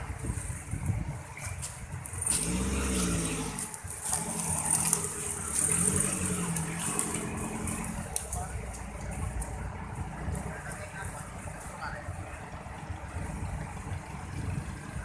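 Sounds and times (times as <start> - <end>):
off-road vehicle engine revving: 2.1 - 15.0.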